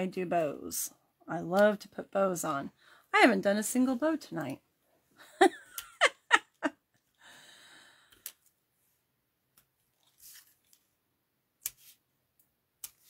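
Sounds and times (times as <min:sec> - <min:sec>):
woman chuckling: 0:05.2 - 0:06.8
breathy exhale: 0:07.2 - 0:08.1.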